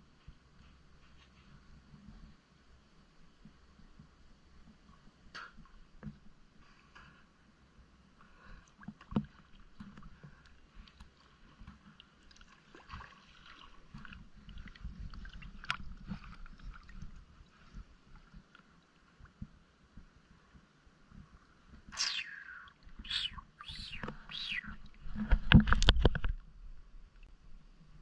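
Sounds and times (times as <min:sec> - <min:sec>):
water sloshing and lapping: 0:08.2 - 0:19.5.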